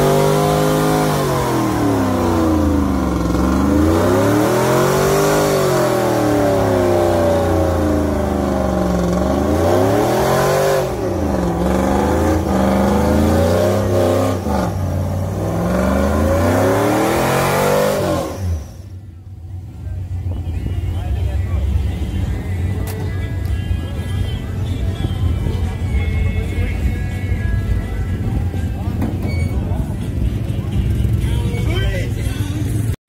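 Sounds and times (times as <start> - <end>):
pickup engine revving hard: 0.0 - 18.8.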